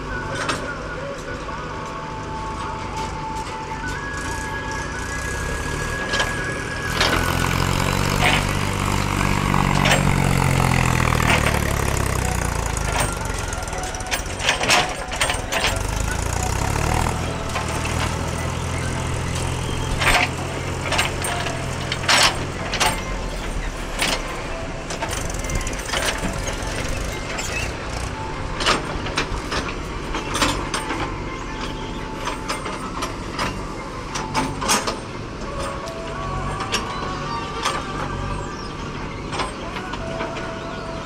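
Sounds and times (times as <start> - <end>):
diesel engines running: 0.0 - 41.0
sharp knocks and rattles: 5.8 - 36.0.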